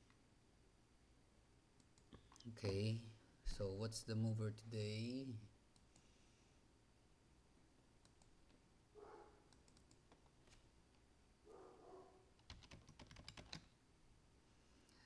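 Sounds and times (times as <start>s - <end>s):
faint keyboard typing: 8.0s - 8.6s, 9.4s - 10.7s, 12.3s - 13.8s.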